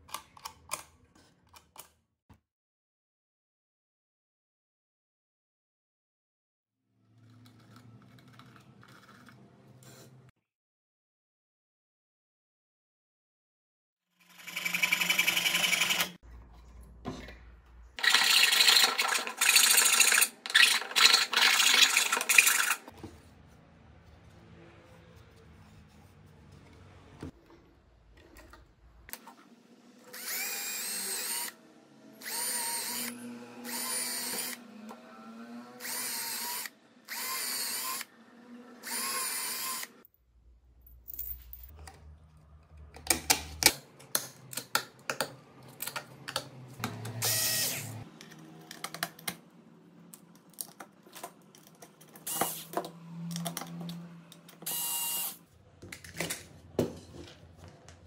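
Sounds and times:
cordless drill drilling into wood: 0:30.1 - 0:31.6, 0:32.2 - 0:34.6, 0:35.8 - 0:38.1, 0:38.8 - 0:39.9, 0:47.2 - 0:48.0, 0:52.3 - 0:52.7, 0:54.6 - 0:55.4.

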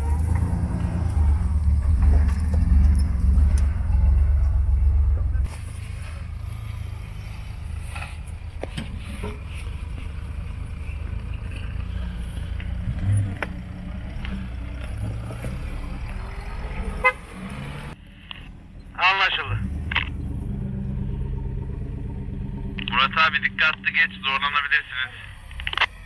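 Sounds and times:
car engine at low revs: 0:00.0 - 0:26.0
car horn beep: 0:17.0 - 0:17.4.

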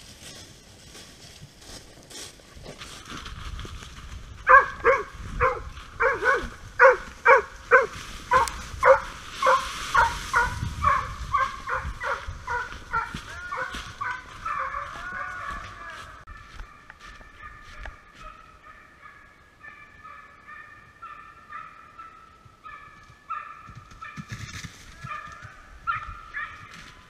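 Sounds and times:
hounds baying: 0:04.4 - 0:24.3, 0:25.0 - 0:26.9.

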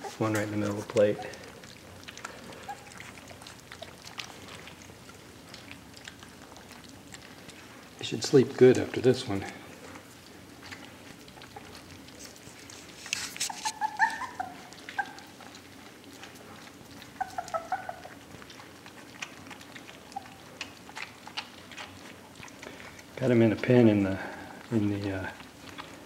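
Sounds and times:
puppies lapping and chewing: 0:00.0 - 0:26.0
puppy squeaks and whimpers: 0:02.4 - 0:04.0, 0:13.2 - 0:15.5, 0:17.0 - 0:18.3, 0:20.0 - 0:20.5.

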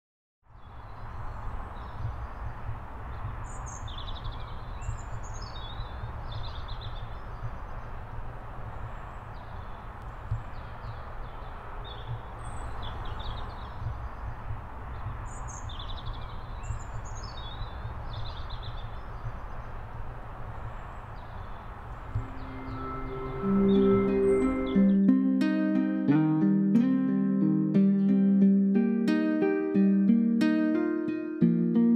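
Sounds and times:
small birds chirping: 0:00.6 - 0:24.8.

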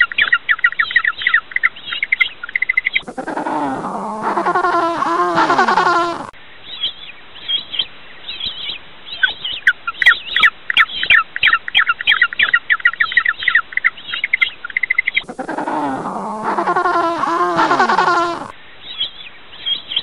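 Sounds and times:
penguin braying call: 0:03.0 - 0:06.3, 0:15.2 - 0:18.5.

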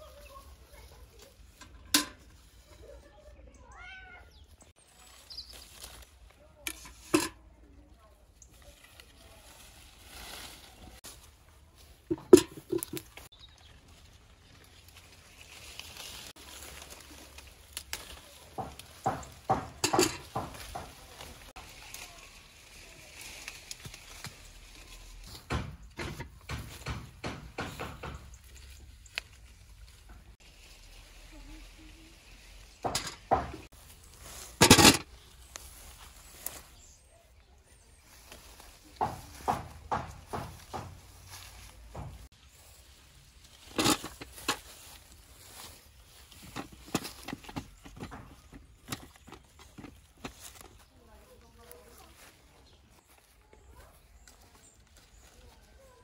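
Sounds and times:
branches and leaves rustling: 0:00.0 - 0:56.0
sharp knocks and snaps: 0:17.8 - 0:21.0, 0:25.3 - 0:29.4, 0:39.0 - 0:41.0.

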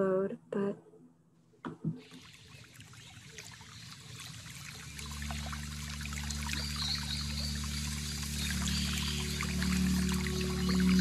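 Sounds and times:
stream water trickling: 0:02.0 - 0:11.0
low sustained music drone: 0:04.2 - 0:11.0.

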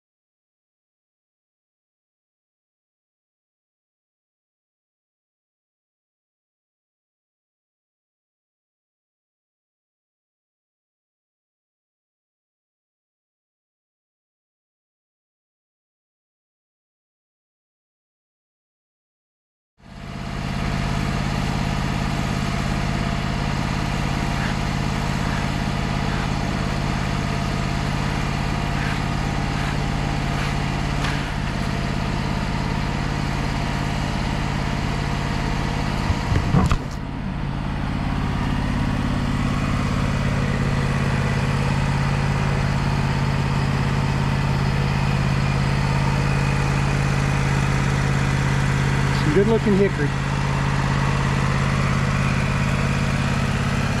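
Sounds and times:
sawmill engine humming: 0:19.9 - 0:54.0.

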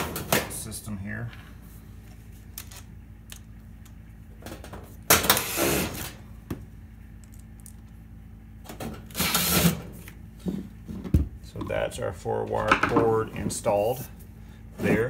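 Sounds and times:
cordless drill running: 0:09.2 - 0:09.8.

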